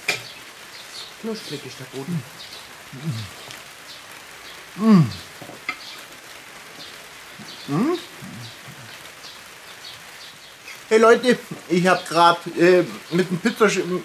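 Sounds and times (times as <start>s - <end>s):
steady hiss: 0.0s - 14.0s
man humming while eating: 3.0s - 3.4s, 4.8s - 5.3s, 7.7s - 8.8s.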